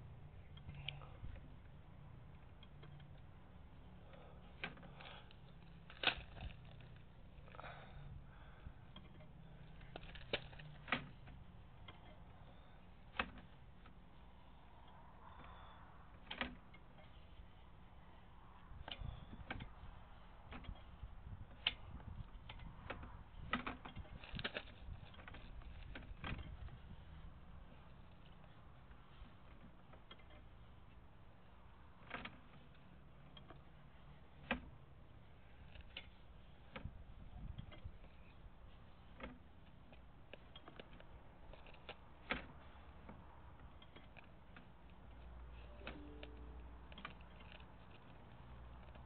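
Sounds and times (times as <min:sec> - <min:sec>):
low steady hum: 0:00.0 - 0:31.8, 0:43.9 - 0:49.0
cable clicking and knocking in pipe: 0:20.4 - 0:26.9, 0:39.1 - 0:49.0
low steady rumble: 0:45.4 - 0:48.1.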